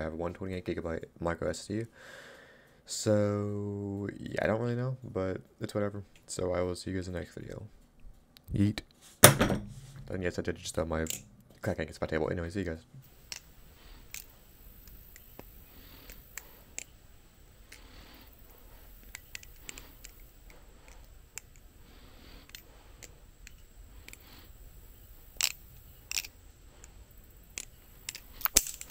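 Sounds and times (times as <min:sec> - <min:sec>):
butterfly knife clicking and clacking: 0:14.1 - 0:17.0, 0:18.9 - 0:21.7, 0:22.4 - 0:24.4, 0:25.3 - 0:28.9.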